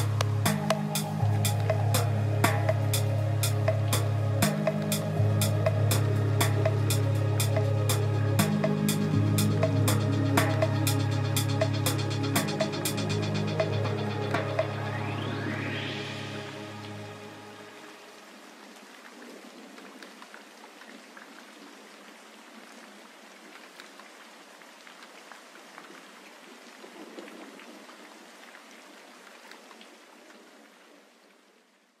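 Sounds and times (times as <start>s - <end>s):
music notes and bass: 0.0s - 17.3s
crackling hiss with clicks: 0.0s - 21.9s, 23.3s - 31.4s.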